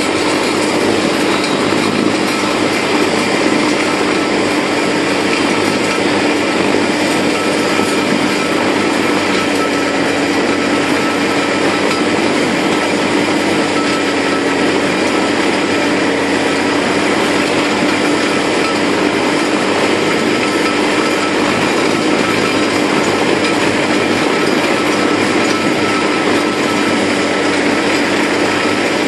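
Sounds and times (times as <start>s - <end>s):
slurry mixer humming: 0.0s - 29.0s.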